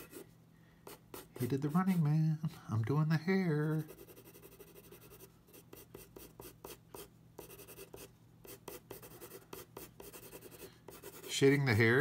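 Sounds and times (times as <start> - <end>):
pencil scratching on paper: 0.0 - 0.2, 0.8 - 2.1, 3.6 - 11.7.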